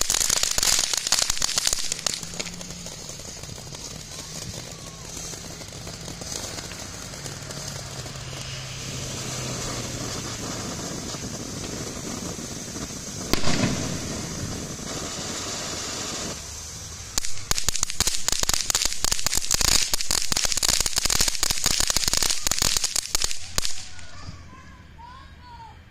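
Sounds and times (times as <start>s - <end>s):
rapid firework crackling: 0.0s - 24.5s
fountain firework hissing: 0.0s - 24.6s
sharp pop: 13.3s - 14.0s.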